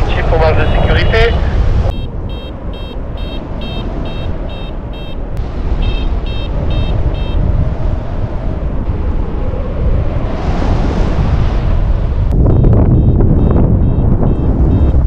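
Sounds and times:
wind rumble on microphone: 0.0 - 15.0
variometer short high beeps: 1.9 - 5.2, 5.8 - 7.4, 12.5 - 15.0.

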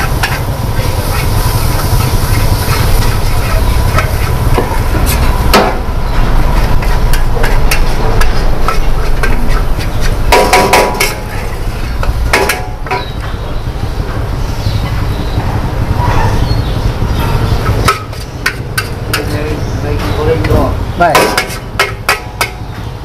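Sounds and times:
metal spatula scraping a wok: 0.0 - 5.5, 6.1 - 13.2, 17.6 - 19.4, 21.2 - 22.6
wok burner roar: 0.0 - 23.0.

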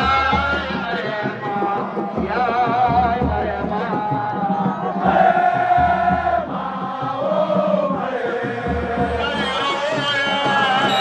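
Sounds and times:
man chanting devotional song: 0.0 - 5.0, 8.2 - 11.0.

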